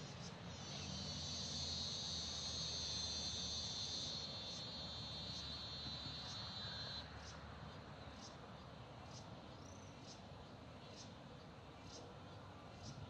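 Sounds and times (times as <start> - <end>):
higher insect trill: 0.0 - 7.4
insects trilling: 0.0 - 7.4.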